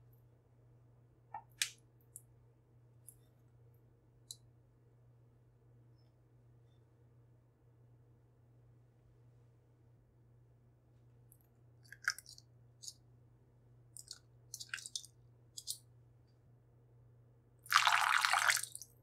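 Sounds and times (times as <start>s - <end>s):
liquid pouring into batter: 17.7s - 18.9s.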